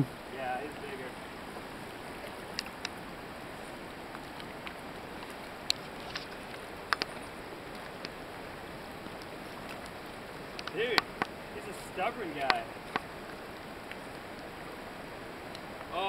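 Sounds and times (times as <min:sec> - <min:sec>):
river water rushing: 0:00.0 - 0:16.0.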